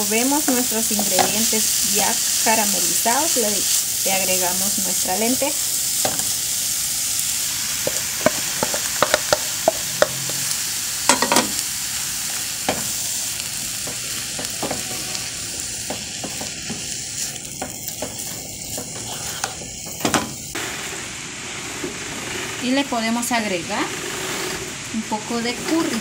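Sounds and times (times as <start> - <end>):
food sizzling in frying pan: 0.0 - 26.0
wooden spoon scraping pan: 13.8 - 20.0.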